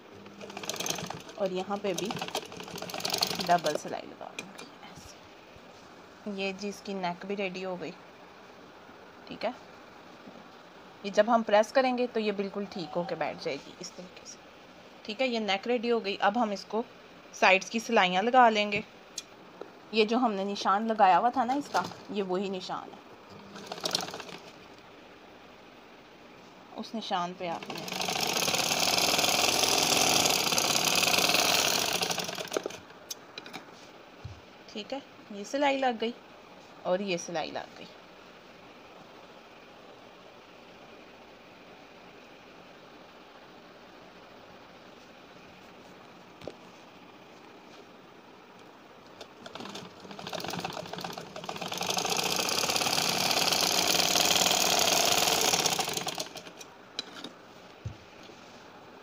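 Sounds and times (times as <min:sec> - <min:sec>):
sewing machine stitching: 0:00.2 - 0:04.7, 0:21.5 - 0:22.0, 0:23.4 - 0:24.6, 0:27.5 - 0:32.8, 0:49.2 - 0:56.6.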